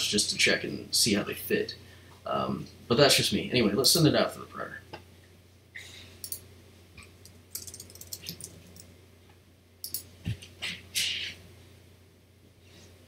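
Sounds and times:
keyboard keys clicking: 7.6s - 8.8s.

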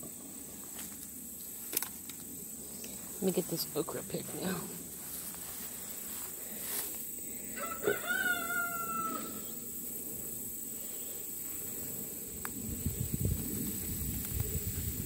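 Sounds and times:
rooster crowing: 7.5s - 9.6s.

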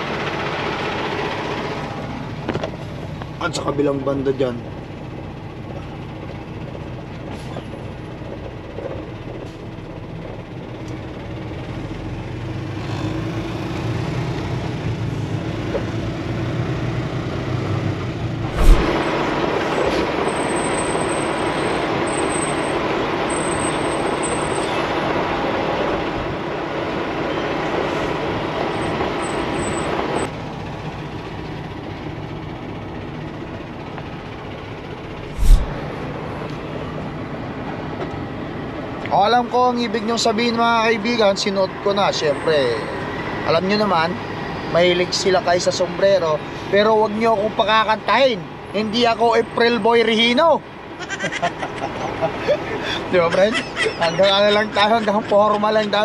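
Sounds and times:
truck engine and road noise: 0.0s - 56.0s
loud even rushing noise: 18.4s - 19.6s, 35.1s - 36.0s.

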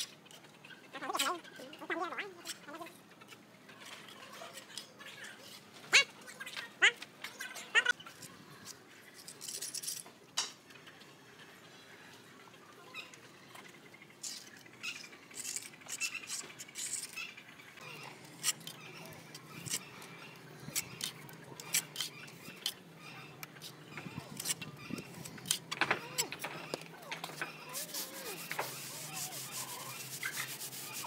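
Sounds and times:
trowel scraping wet cement: 27.2s - 31.0s.

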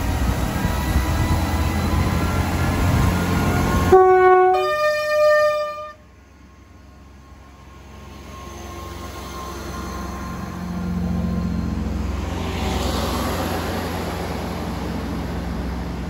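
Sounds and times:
train rumbling: 0.0s - 16.0s
two-note train horn: 3.4s - 6.1s.

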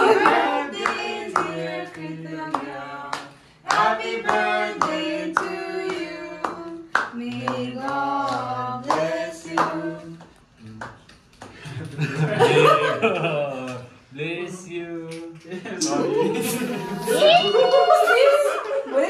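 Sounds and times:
people singing: 0.0s - 10.8s.

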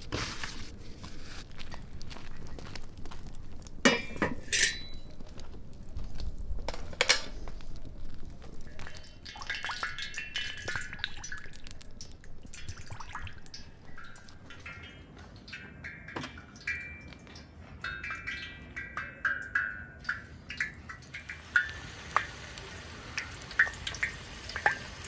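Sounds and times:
metal frying pan clanking: 3.8s - 5.0s
oil pouring into pan: 7.4s - 14.8s, 19.4s - 25.0s.

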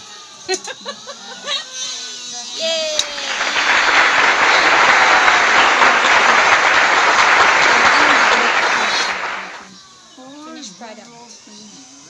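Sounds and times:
crowd clapping: 2.6s - 9.7s.

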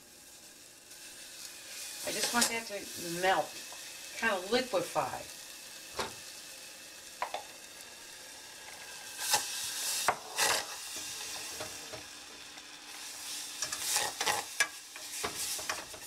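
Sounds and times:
steady hiss: 0.0s - 16.0s
wooden spoon scraping saucepan: 10.1s - 11.8s, 13.6s - 16.0s.

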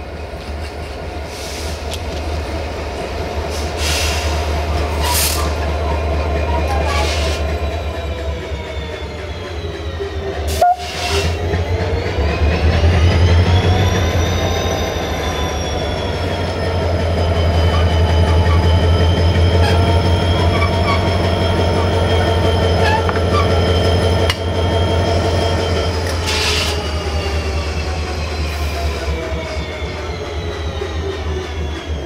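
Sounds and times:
deep locomotive engine hum: 0.0s - 32.0s
short hiss of air: 3.5s - 4.4s.

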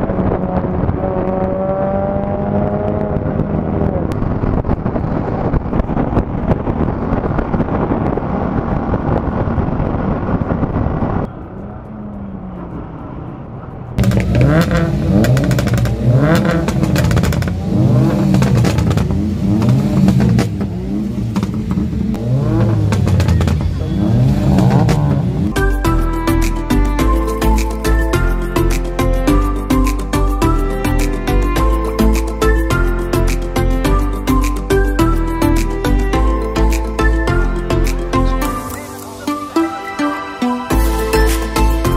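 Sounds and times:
wind noise on microphone: 0.0s - 13.0s
motorcycle engine at speed: 0.0s - 25.6s
car engines revving: 0.0s - 41.9s.

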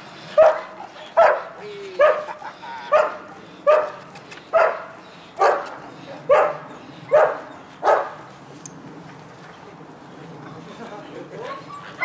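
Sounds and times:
dog barking high-pitched: 0.4s - 2.2s, 4.6s - 5.7s, 6.3s - 8.1s.

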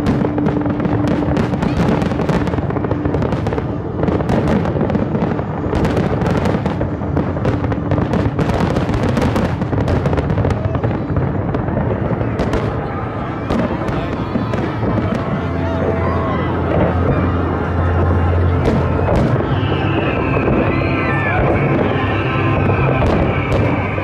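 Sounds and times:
fireworks booming: 0.0s - 24.0s
fireworks crackling: 0.0s - 24.0s.

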